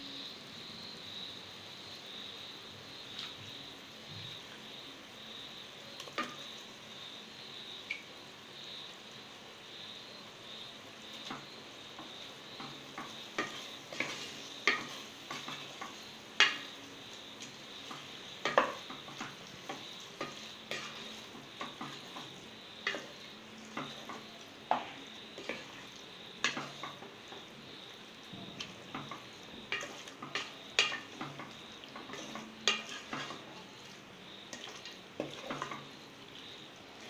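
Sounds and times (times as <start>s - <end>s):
frying sizzle: 0.0s - 37.0s
wooden spoon scraping pot: 12.6s - 16.6s, 17.8s - 27.5s, 28.6s - 35.9s.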